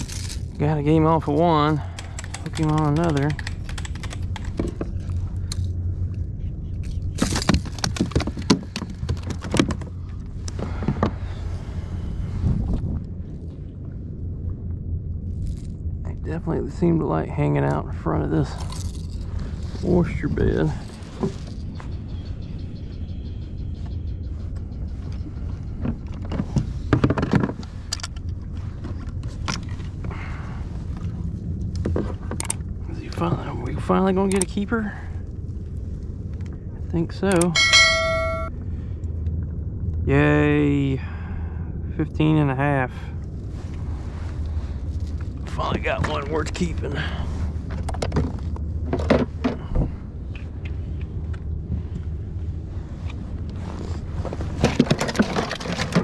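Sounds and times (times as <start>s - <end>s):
steady low rumble: 0.0s - 56.0s
fish and lure rattling on kayak deck: 1.8s - 5.7s, 54.6s - 56.0s.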